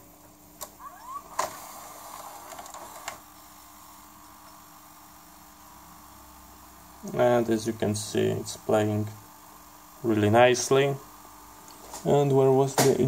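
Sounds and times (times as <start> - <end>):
tape deck running: 0.5 - 3.3.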